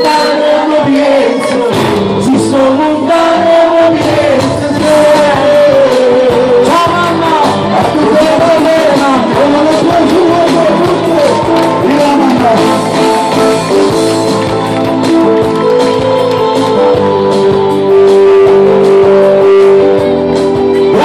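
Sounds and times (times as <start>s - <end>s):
person singing: 0.0s - 13.8s
electric keyboards: 0.0s - 21.0s.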